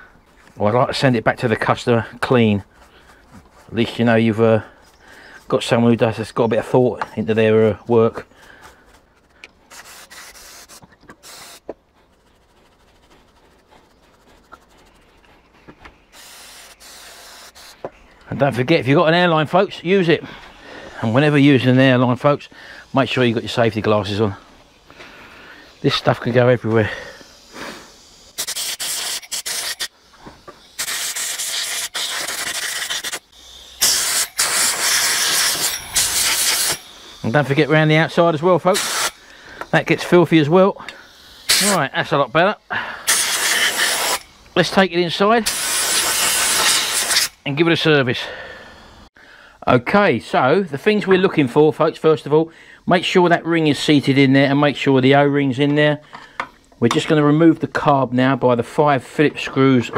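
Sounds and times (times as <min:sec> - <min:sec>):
stiff brush scrubbing: 0:00.4 - 0:04.6, 0:07.2 - 0:17.8, 0:41.4 - 0:42.2
faint scratching: 0:07.4 - 0:16.4
compressed air hissing: 0:07.7 - 0:15.3, 0:16.0 - 0:18.2, 0:20.2 - 0:47.5.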